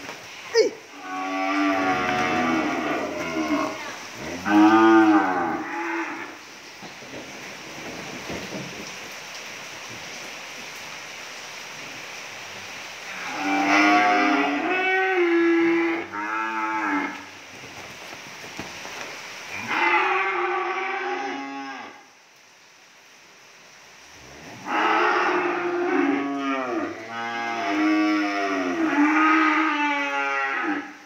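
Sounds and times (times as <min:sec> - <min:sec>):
cattle mooing: 0:01.0 - 0:06.4, 0:13.2 - 0:17.3, 0:19.6 - 0:22.0, 0:24.6 - 0:31.0.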